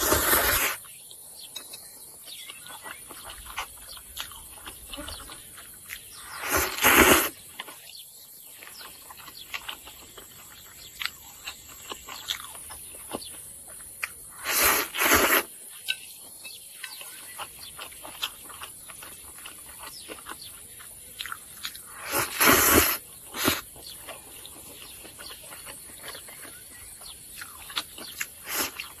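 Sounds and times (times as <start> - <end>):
person slurping noodles: 0.0 - 0.8, 6.2 - 7.4, 14.3 - 15.5, 21.9 - 23.7
wet chewing and smacking: 0.8 - 29.0.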